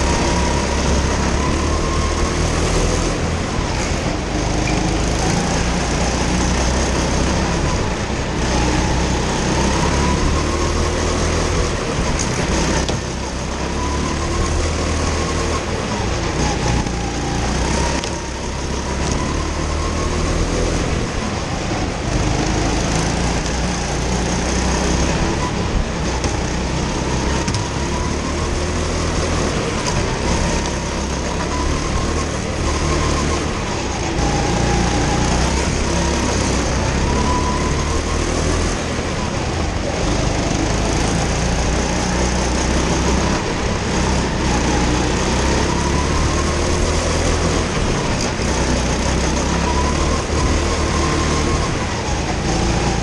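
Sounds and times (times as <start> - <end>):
go-kart engine racing: 0.0 - 53.0.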